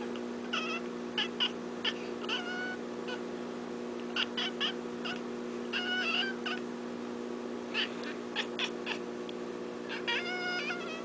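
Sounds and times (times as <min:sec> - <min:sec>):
steady low hum: 0:00.0 - 0:11.0
cat chirping and trilling: 0:00.4 - 0:03.3, 0:04.1 - 0:06.7, 0:07.7 - 0:09.1, 0:09.8 - 0:11.0.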